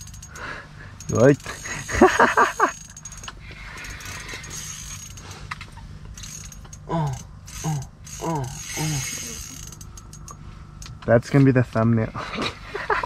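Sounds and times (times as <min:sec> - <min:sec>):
fishing reel clicking whir: 0:00.0 - 0:05.4, 0:06.1 - 0:10.9.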